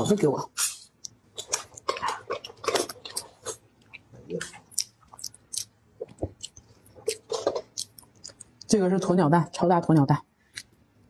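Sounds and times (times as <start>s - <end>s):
chewing and crunching: 0.6s - 8.8s.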